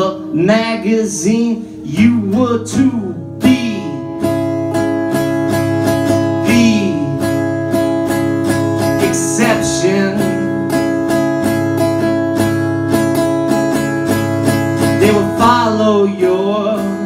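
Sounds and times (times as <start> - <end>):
person singing: 0.0 - 4.3, 6.2 - 7.5, 8.9 - 11.2, 14.8 - 17.0
acoustic guitar strumming: 0.0 - 17.0.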